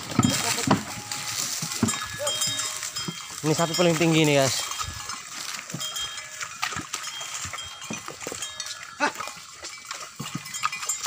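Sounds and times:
wooden cart knocking: 0:00.0 - 0:08.6
hollow bell knocks: 0:00.0 - 0:09.0.

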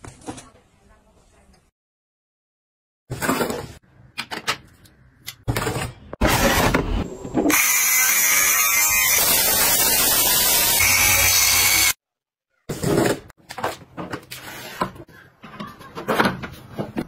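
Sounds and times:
electric fabric shaver running: 0:07.5 - 0:12.0.

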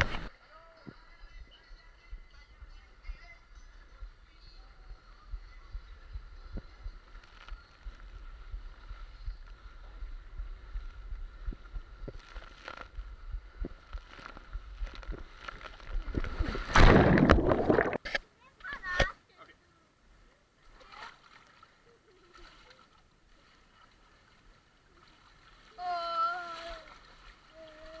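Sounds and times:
water splash: 0:14.0 - 0:18.2.

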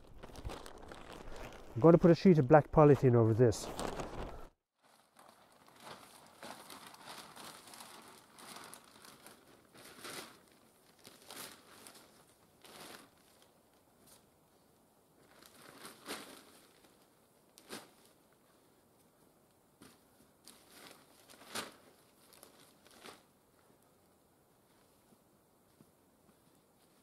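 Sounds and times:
plastic sheet crinkling: 0:00.0 - 0:13.5, 0:15.2 - 0:18.2, 0:20.4 - 0:23.3.

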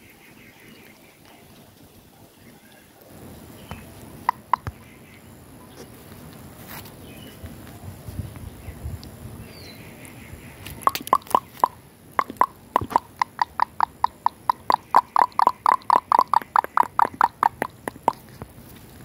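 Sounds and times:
sharp hollow clucking clicks: 0:03.7 - 0:04.9, 0:10.6 - 0:18.5.

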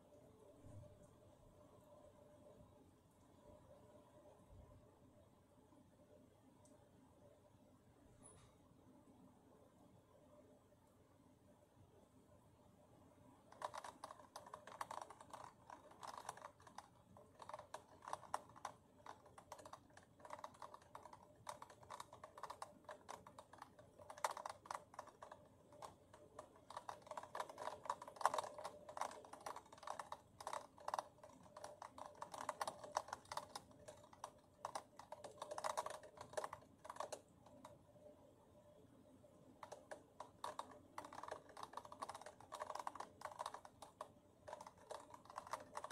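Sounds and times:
rapid light tapping: 0:13.5 - 0:37.8, 0:39.6 - 0:45.9.

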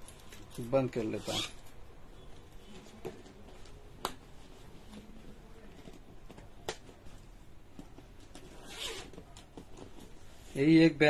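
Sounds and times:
leather bag handling: 0:04.9 - 0:10.3.

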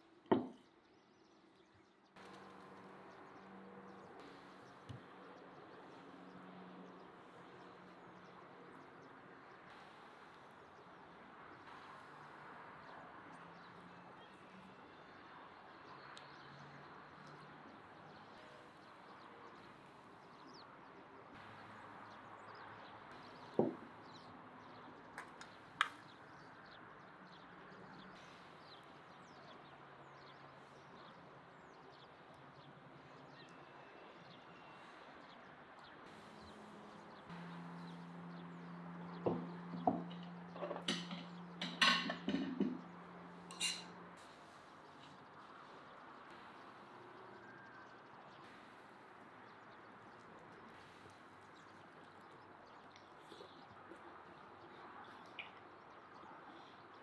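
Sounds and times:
metal tongs clinking on pan: 0:43.5 - 0:43.9.

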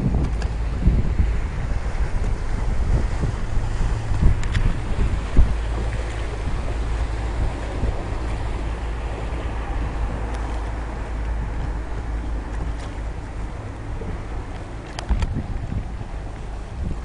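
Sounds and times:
open water washing: 0:00.0 - 0:17.0
wind buffeting microphone: 0:00.0 - 0:17.0.

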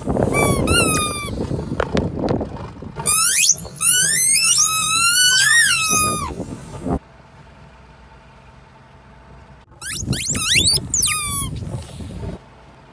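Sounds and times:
rubber squeaky toys squealing: 0:00.2 - 0:01.4, 0:03.0 - 0:06.4, 0:09.8 - 0:11.6.

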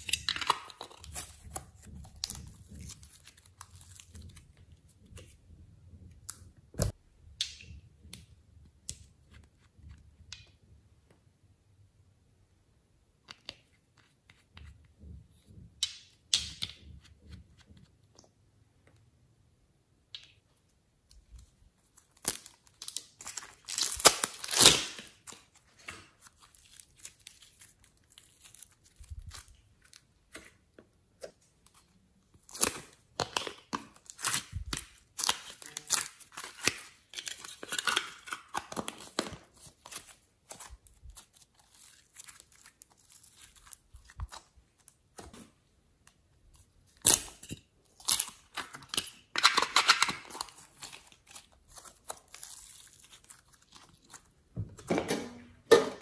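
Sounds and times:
slime stretching and crackling: 0:21.8 - 0:30.5, 0:32.3 - 0:45.2, 0:46.5 - 0:54.5.

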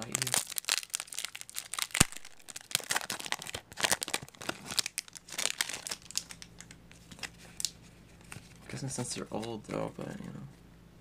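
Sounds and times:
foil wrapper crinkling and tearing: 0:00.0 - 0:08.6.

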